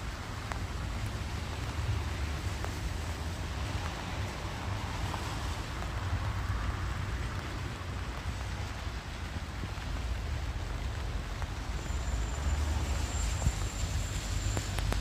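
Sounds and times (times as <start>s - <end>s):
rain hiss: 0.0s - 15.0s
traffic on wet roads: 0.0s - 15.0s
wind rumbling on microphone: 13.3s - 15.0s.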